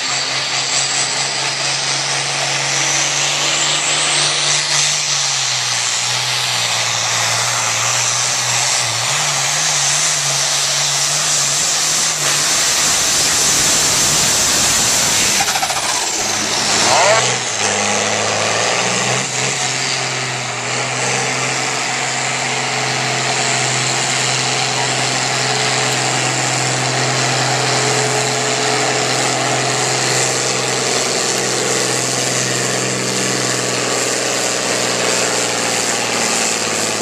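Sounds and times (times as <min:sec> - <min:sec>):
tractor diesel engine droning: 0:00.0 - 0:37.0.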